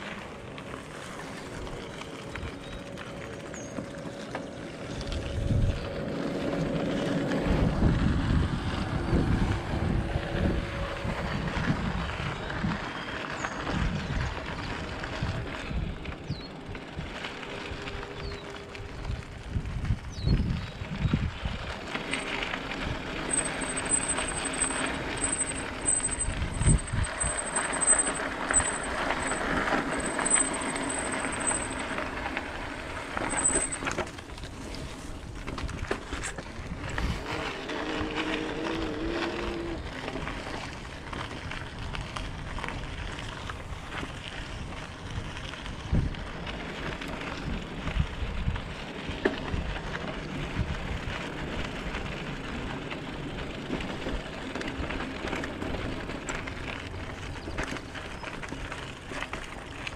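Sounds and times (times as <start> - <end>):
bicycle tyres crunching on gravel: 0.0 - 59.9
wind noise: 4.8 - 52.1.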